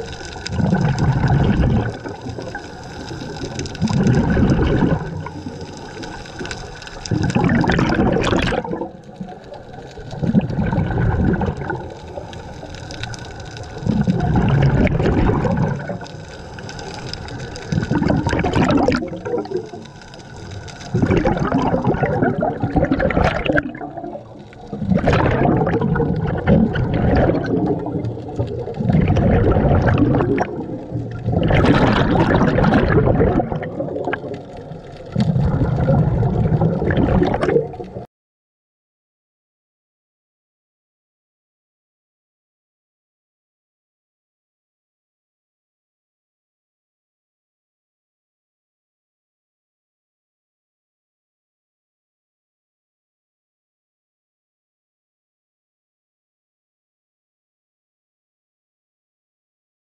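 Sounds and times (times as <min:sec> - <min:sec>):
exhaled bubbles gurgling underwater: 0:00.0 - 0:38.1.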